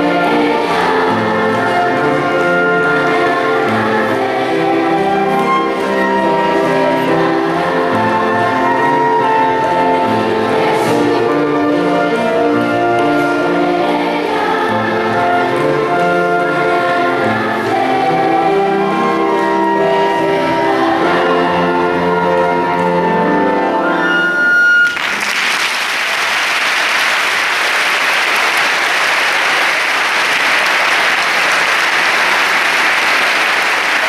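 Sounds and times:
choir singing: 0.0 - 24.3
audience applause: 24.8 - 34.0.

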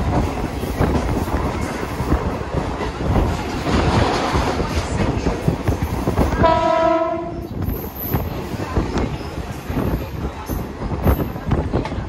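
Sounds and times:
train wheels rumbling on track: 0.0 - 12.0
train horn blast: 6.4 - 7.4.

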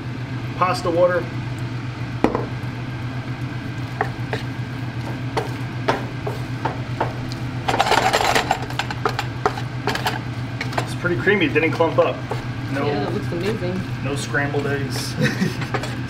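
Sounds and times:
wet stirring of pasta: 3.3 - 16.0.

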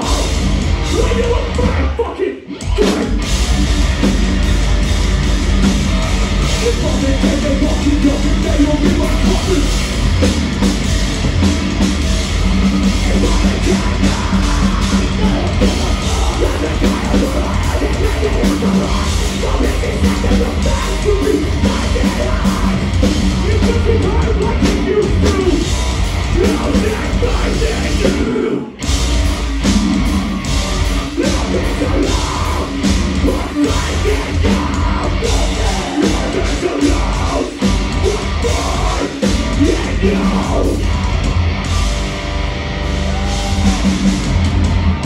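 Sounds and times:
bass: 0.0 - 45.0
distorted guitars: 0.0 - 45.0
drums: 0.0 - 45.0
person yelling vocals: 43.0 - 44.0.

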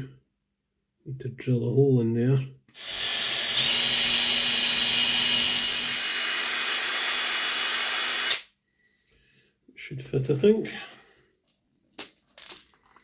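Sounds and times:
cordless drill running: 2.7 - 8.5.

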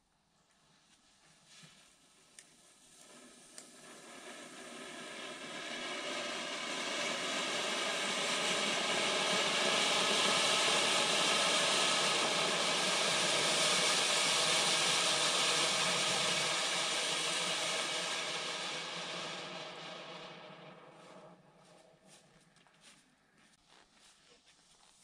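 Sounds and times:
firework fountains hissing sparks: 1.6 - 21.6.

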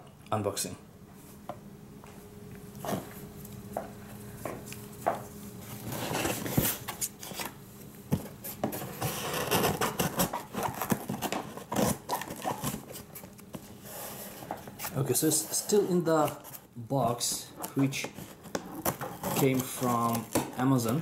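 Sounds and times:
cardboard scraping and rustling: 5.1 - 21.0.

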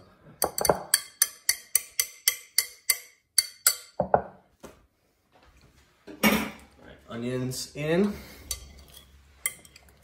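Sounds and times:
metal whisk tapping glass bowl: 0.4 - 4.2.

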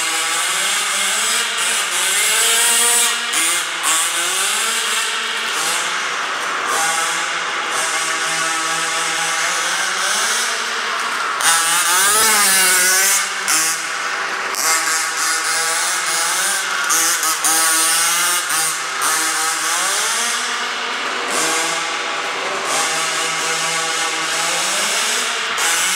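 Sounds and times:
model truck engine revving: 0.0 - 25.9.

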